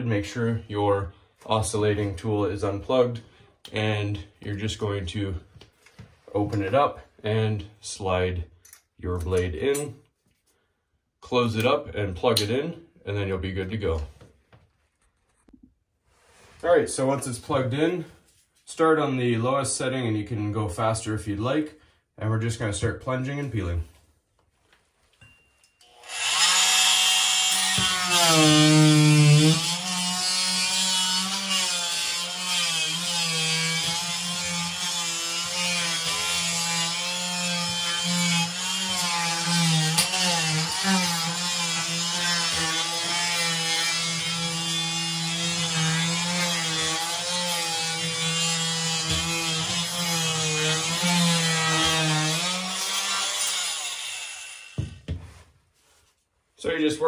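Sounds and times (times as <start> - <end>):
oscillating multi-tool buzzing: 25.8 - 33.4.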